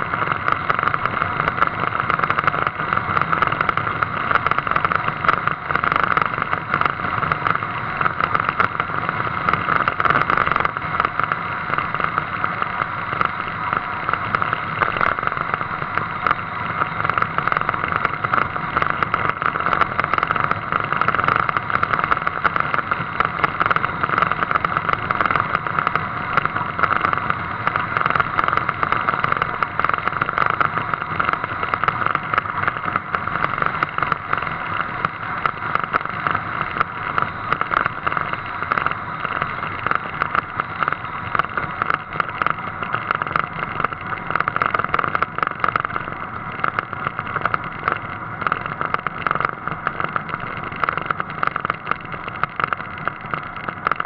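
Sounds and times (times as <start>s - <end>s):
wind and road noise: 0.0s - 54.0s.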